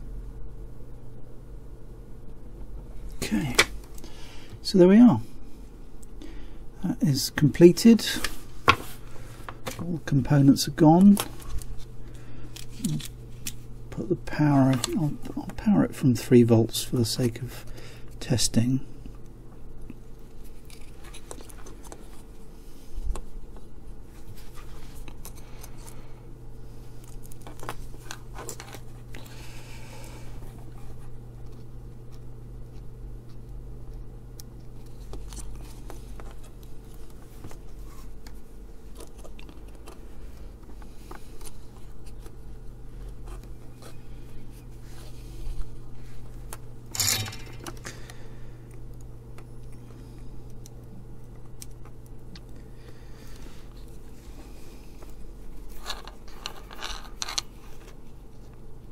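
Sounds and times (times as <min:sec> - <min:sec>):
steady low hum: 0:00.0 - 0:58.9
clicks and scrapes of small parts: 0:46.5 - 0:48.0, 0:55.0 - 0:58.6
clatter on workbench: 0:47.0 - 0:47.7.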